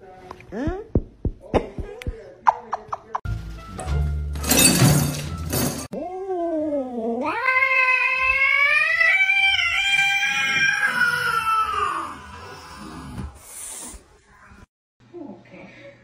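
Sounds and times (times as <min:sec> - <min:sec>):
cat yowling: 0:07.2 - 0:12.4.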